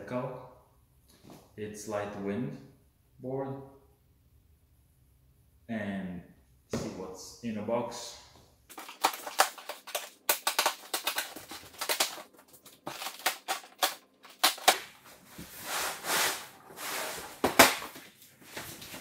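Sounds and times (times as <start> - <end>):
packing tape tearing: 8.7 - 19.0.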